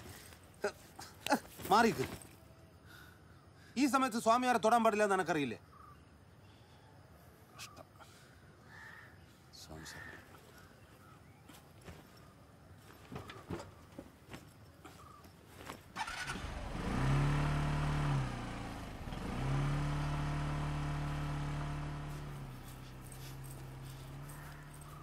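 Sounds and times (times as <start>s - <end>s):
motorcycle engine revving: 16.0s - 25.0s.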